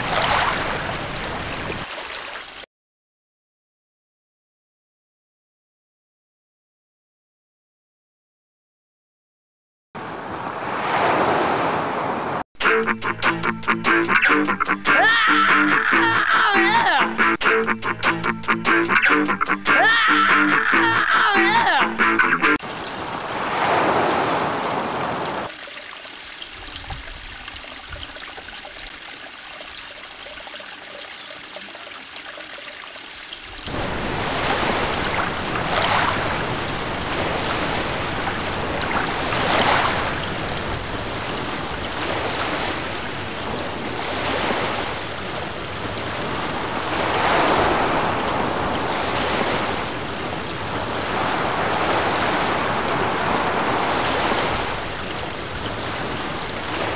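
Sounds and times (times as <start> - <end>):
rushing noise like surf: 33.7 - 56.9.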